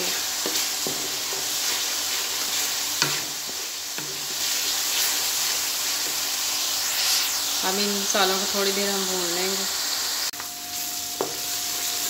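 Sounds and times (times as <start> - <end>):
masala sizzling in hot oil: 0.0 - 12.0
wooden spoon knocking on pan: 0.4 - 1.5, 11.2 - 11.4.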